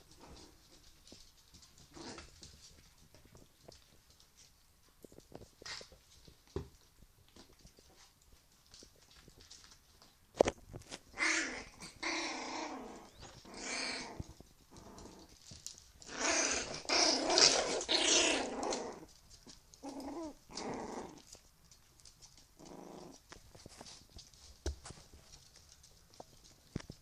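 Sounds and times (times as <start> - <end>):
puppies growling in play: 0.0 - 6.7, 10.4 - 24.4.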